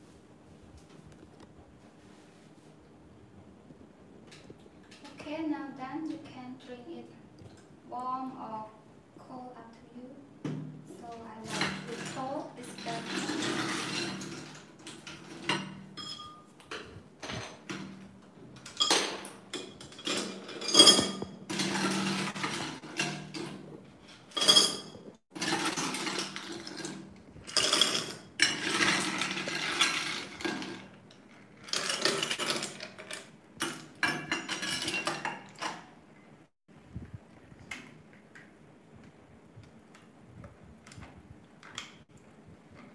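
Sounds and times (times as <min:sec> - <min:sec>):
ice scoop scraping: 0:11.4 - 0:14.6
ice cubes clinking and clattering: 0:11.5 - 0:15.6, 0:18.7 - 0:23.4, 0:24.3 - 0:35.6.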